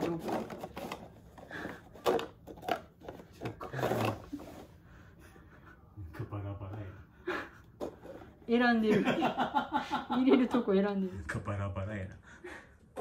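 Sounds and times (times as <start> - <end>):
paper cups tapping and scuffing: 0.0 - 4.8.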